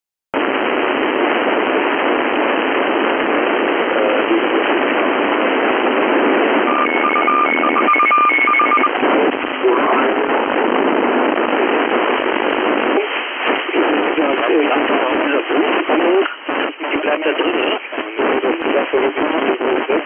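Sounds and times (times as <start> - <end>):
radio receiver hiss: 0.4 - 20.0
two-tone beeping: 6.7 - 9.0.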